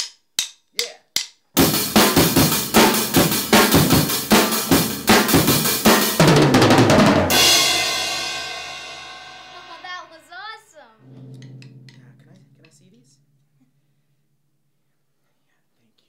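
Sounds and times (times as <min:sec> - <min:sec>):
drumsticks click: 0:00.0 - 0:01.4
drum kit beat: 0:00.0 - 0:10.4, 0:11.0 - 0:13.8
cymbal crash: 0:07.2 - 0:09.9, 0:11.0 - 0:14.2.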